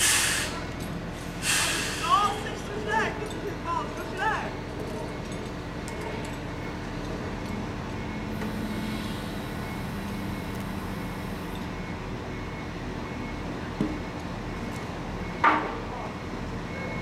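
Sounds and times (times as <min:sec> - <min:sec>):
hiss: 0:00.0 - 0:00.6, 0:01.4 - 0:02.2, 0:08.5 - 0:10.0
heavy diesel machinery running: 0:00.0 - 0:02.9, 0:03.5 - 0:17.0.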